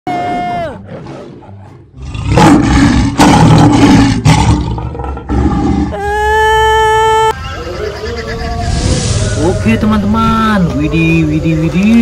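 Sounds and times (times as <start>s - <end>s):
tiger roaring: 0.8s - 6.0s.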